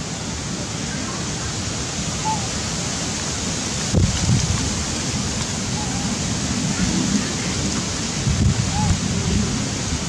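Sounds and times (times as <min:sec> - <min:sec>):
wind buffeting microphone: 0:03.8 - 0:10.0.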